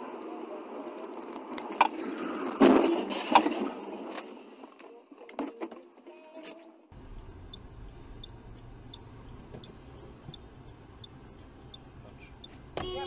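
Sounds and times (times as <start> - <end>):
engine and road rumble: 0.0 - 13.0
turn signal ticking: 6.9 - 13.0.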